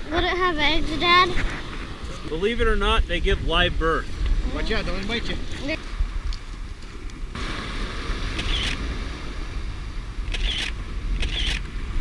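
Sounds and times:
surf: 0.0s - 12.0s
wind: 0.0s - 12.0s
phone camera shutter: 8.3s - 8.8s, 10.3s - 11.7s.

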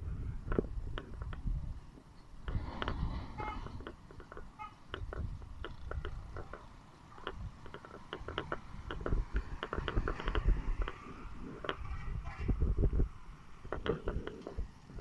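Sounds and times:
wind buffeting microphone: 0.0s - 6.6s, 7.2s - 15.0s
handling noise clicks and knocks: 3.6s - 12.6s, 13.6s - 15.0s.

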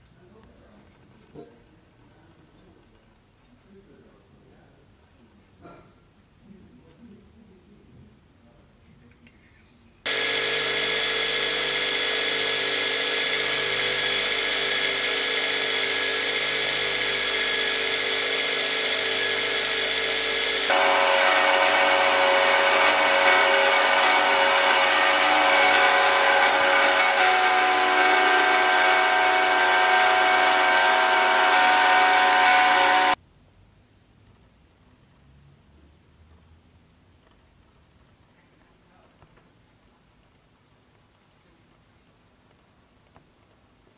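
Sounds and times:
belt grinder whining: 10.1s - 33.2s.

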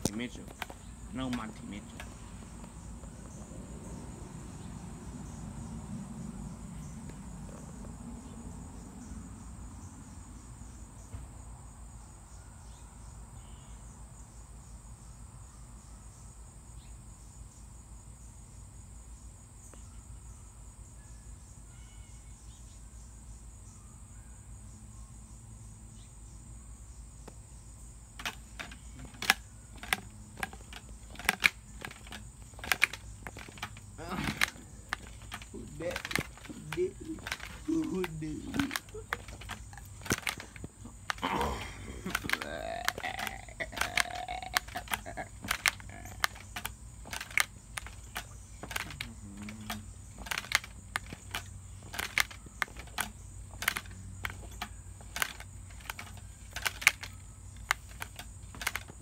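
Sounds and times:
sharp clicks or knocks: 0.0s - 2.2s, 28.2s - 41.4s, 42.1s - 59.0s
insect chorus trilling: 0.0s - 59.0s.

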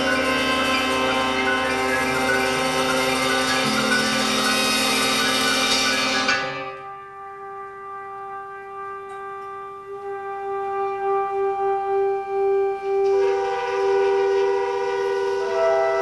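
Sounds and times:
big band playing: 0.0s - 16.0s.

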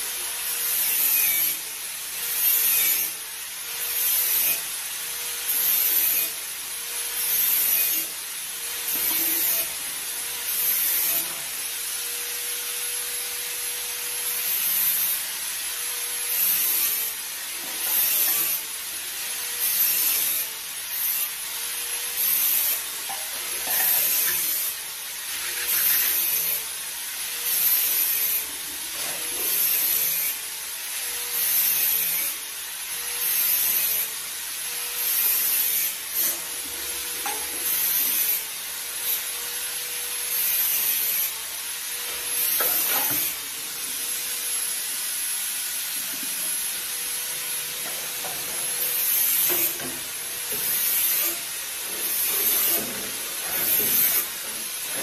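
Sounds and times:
brush scrubbing dishes: 23.0s - 24.5s, 25.2s - 26.3s.

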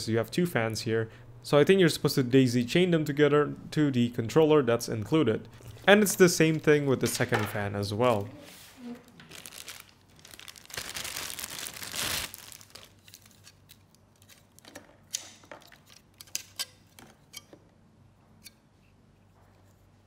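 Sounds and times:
plastic bag crinkling: 9.0s - 14.7s.

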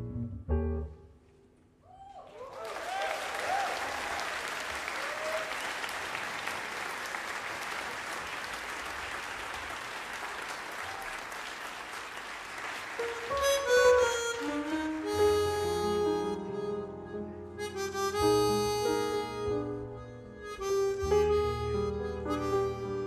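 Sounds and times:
audience applauding: 2.0s - 15.5s
harmonica melody: 13.0s - 23.0s.

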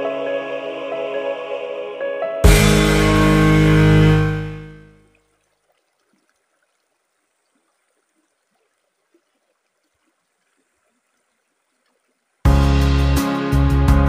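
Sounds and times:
river trickling over rocks: 5.0s - 12.5s.

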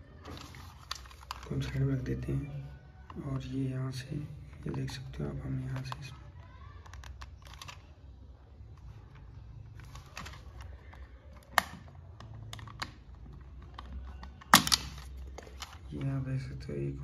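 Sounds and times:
plastic clicks and taps: 5.6s - 6.2s.

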